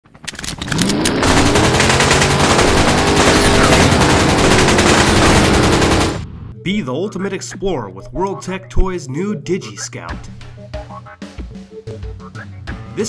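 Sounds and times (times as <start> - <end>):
rapid-fire rattling: 0.0 - 6.3.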